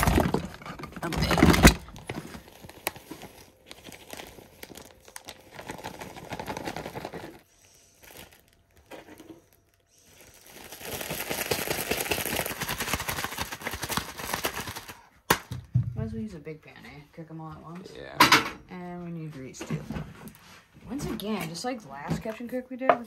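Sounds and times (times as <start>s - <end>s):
plastic bag rustling and crinkling: 0.0s - 15.1s.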